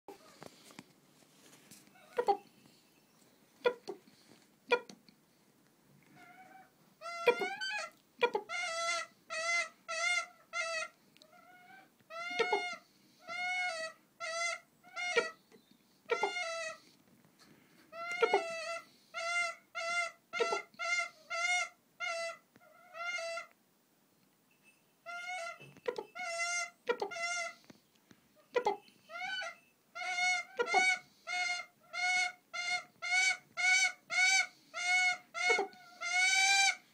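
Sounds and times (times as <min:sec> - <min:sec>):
hawk calling: 0:28.6 - 0:36.8.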